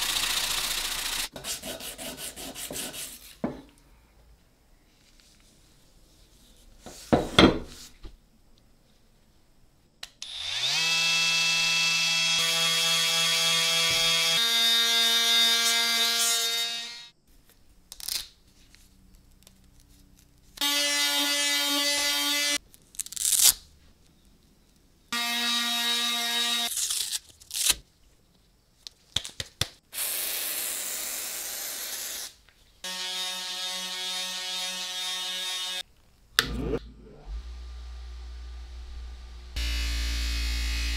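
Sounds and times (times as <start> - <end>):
oscillating multi-tool buzzing: 0.0 - 1.3, 36.8 - 40.9
power sander buzzing: 0.0 - 1.3, 10.2 - 16.1, 36.4 - 40.9.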